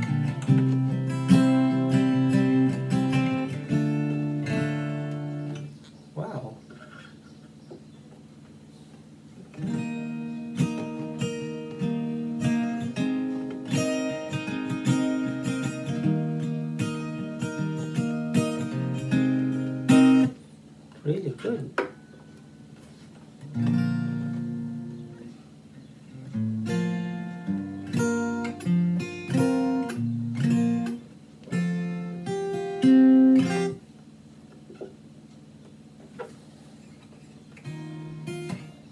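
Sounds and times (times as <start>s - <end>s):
acoustic guitar strumming chords: 0.0s - 6.4s, 9.4s - 38.9s.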